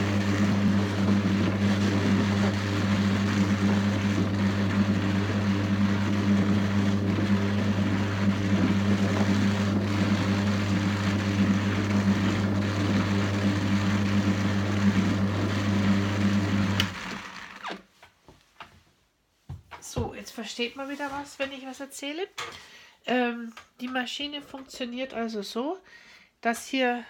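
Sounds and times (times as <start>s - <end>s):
drum carder motor humming: 0.0s - 17.4s.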